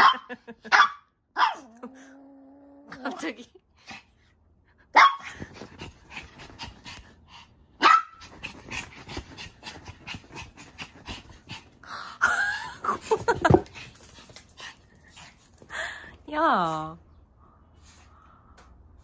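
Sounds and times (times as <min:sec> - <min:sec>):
dog barking: 0:00.0 - 0:02.2, 0:05.0 - 0:05.3, 0:07.8 - 0:08.2
paws thumping on a bed: 0:08.2 - 0:11.7.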